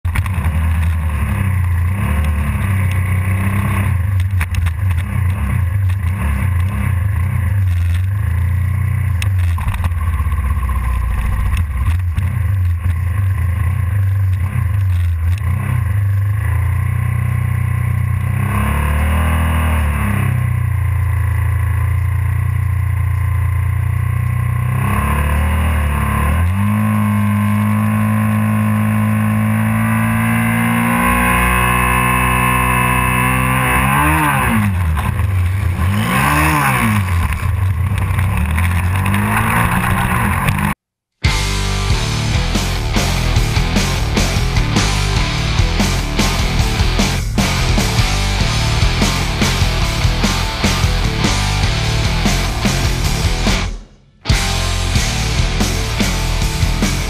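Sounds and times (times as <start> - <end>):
motorcycle engine idling and revving: 0.0 - 57.0.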